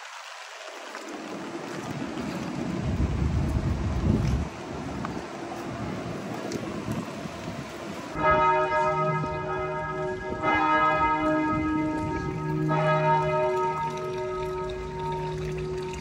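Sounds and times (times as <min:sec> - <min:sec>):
rain: 0:00.0 - 0:16.0
wind: 0:00.0 - 0:16.0
church bells ringing: 0:08.2 - 0:16.0.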